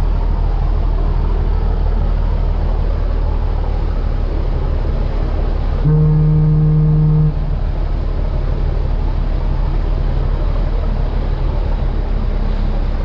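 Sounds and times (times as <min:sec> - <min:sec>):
boat engine running: 0:00.0 - 0:13.0
water rushing past hull: 0:00.0 - 0:13.0
deep horn blast: 0:05.7 - 0:07.8.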